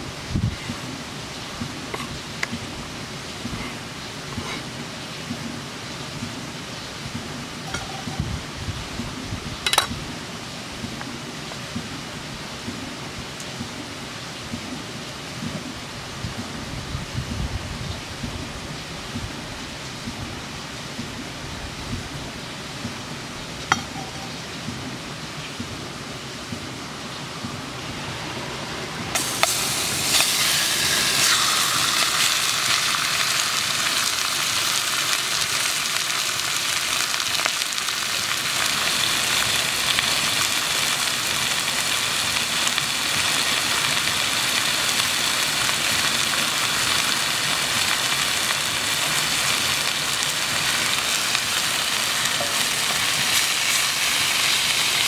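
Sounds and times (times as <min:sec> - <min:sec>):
campfire crackling: 0:25.6 - 0:55.0
meat sizzling in a hot pan: 0:29.2 - 0:55.0.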